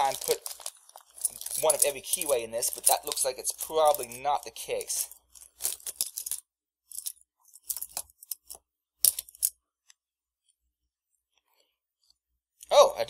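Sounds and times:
metal keys clinking: 0.0 - 9.6.

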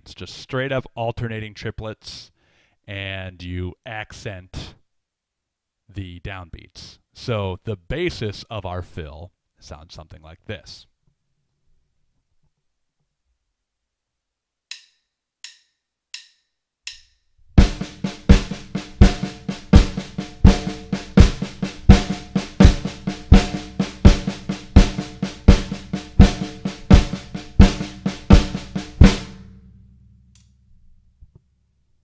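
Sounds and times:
drumstick clicks: 14.7 - 17.2, 30.3 - 30.6
drum kit playing: 17.6 - 30.4.

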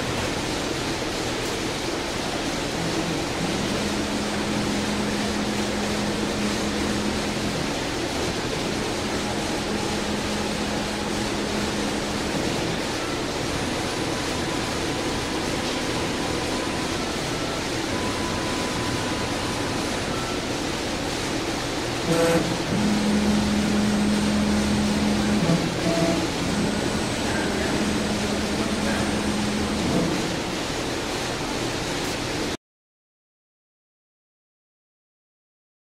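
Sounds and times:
vacuum pumps low hum: 0.0 - 32.5.

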